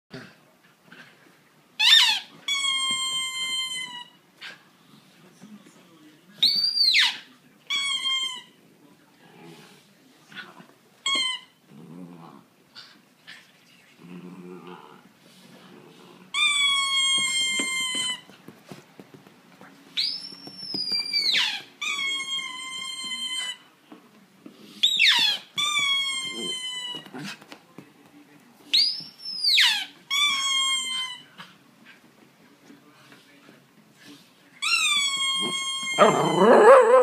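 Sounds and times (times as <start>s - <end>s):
dog howling: 35.8s - 37.0s.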